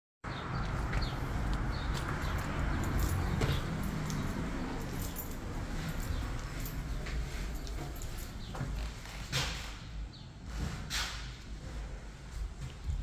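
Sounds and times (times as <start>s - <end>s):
footsteps on wooden floor: 0.6s - 9.3s.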